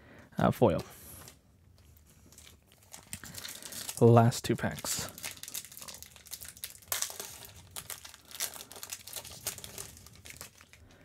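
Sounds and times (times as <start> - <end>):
foil wrapper crinkling: 1.2 - 10.9
foil wrapper tearing: 2.3 - 10.8.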